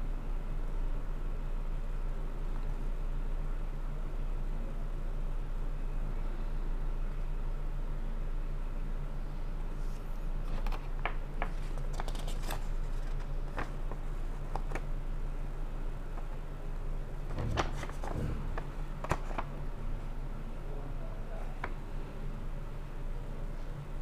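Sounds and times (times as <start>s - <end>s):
steady low hum: 0.0s - 24.0s
paper rustling and crinkling: 9.8s - 14.9s, 17.2s - 19.6s.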